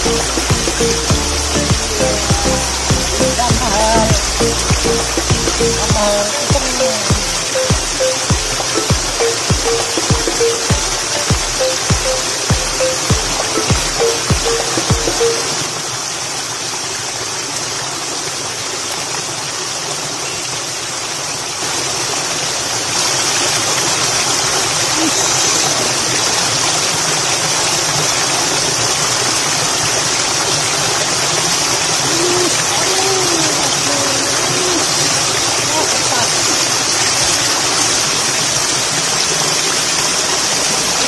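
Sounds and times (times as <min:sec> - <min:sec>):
music beats: 0:00.0 - 0:15.5
water cascading over rock: 0:00.0 - 0:41.0.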